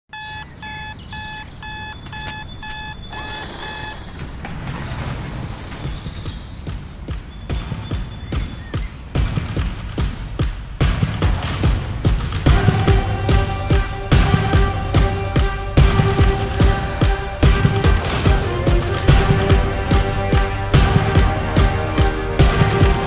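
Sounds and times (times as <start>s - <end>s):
alarm clock beeping: 0.1s - 4.1s
music with heavy beat: 6.6s - 23.0s.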